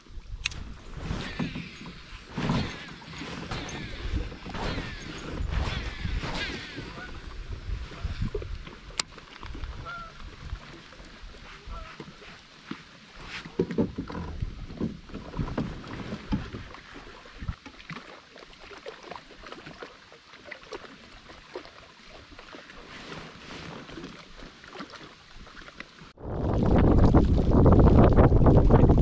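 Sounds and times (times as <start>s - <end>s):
water lapping against kayak hull: 0.0s - 29.0s
wind buffeting microphone: 0.2s - 10.8s, 26.2s - 29.0s.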